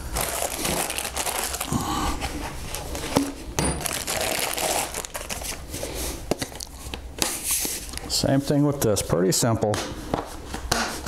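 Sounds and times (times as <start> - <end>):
plastic bag crinkling: 0.0 - 1.8, 3.8 - 5.7.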